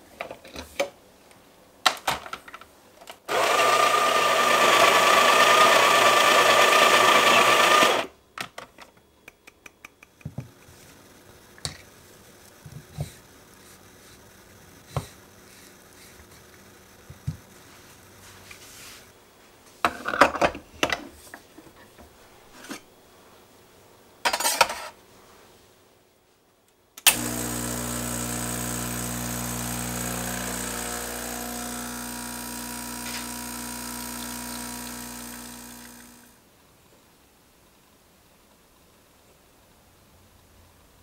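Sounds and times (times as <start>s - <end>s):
espresso machine pump buzzing: 3.3s - 8.1s, 27.1s - 36.3s.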